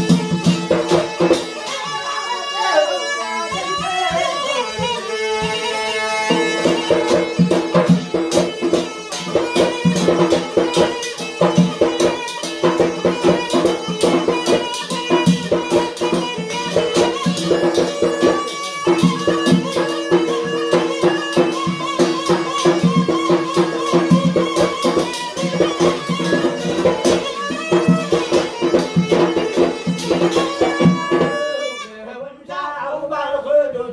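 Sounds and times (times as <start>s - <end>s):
barrel drum beat: 0.0s - 2.2s, 2.9s - 31.9s
reed pipe melody: 0.0s - 32.0s.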